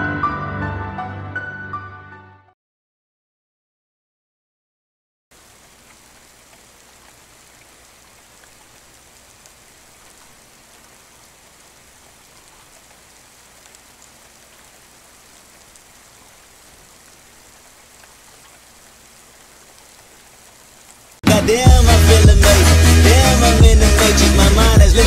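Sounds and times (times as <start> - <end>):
steady hiss with faint ticks: 5.4 - 21.2.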